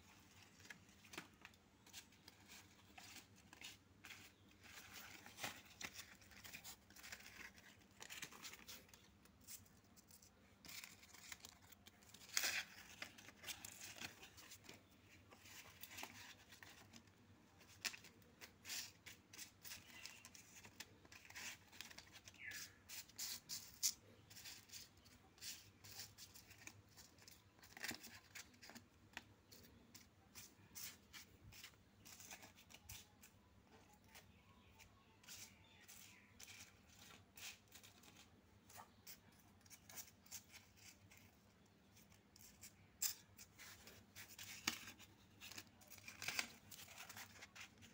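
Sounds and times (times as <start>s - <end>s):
paper cards rustling and sliding: 0.1s - 33.4s, 43.2s - 47.9s.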